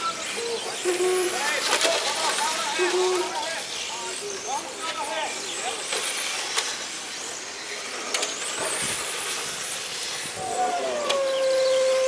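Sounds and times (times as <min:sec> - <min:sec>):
steady hiss: 0:00.0 - 0:12.0
electric motors whining: 0:05.5 - 0:12.0.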